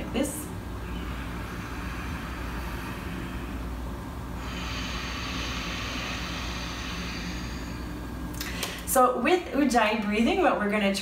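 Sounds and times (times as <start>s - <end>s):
throaty breathing through nose: 1.0s - 8.6s.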